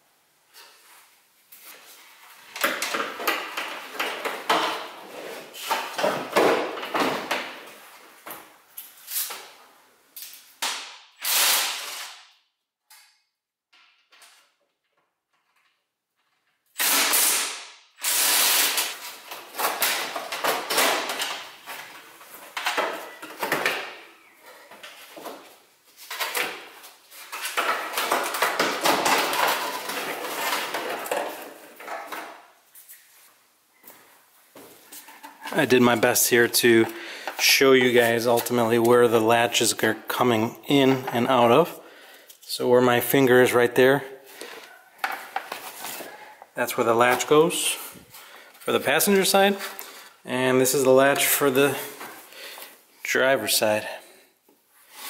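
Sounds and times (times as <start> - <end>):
car parts and tools clattering: 18.9 - 32.6.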